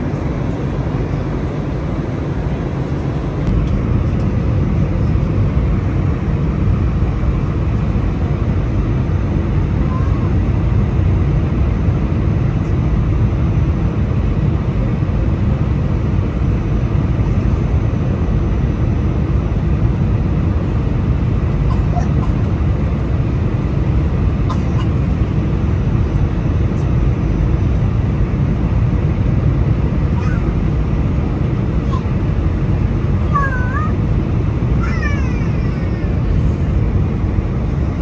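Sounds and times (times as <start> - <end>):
airliner cabin engine rumble: 0.0 - 38.0.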